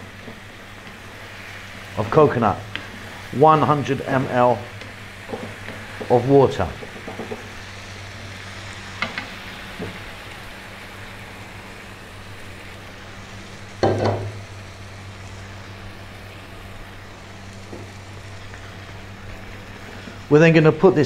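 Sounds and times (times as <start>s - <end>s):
food sizzling in a pan: 0.0s - 21.0s.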